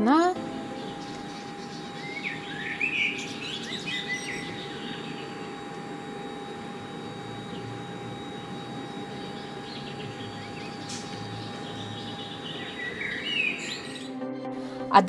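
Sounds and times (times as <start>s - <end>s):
birds chirping: 0.0s - 14.3s
steady low town hum: 0.0s - 15.0s
loud bird call: 0.5s - 6.0s, 8.9s - 14.2s.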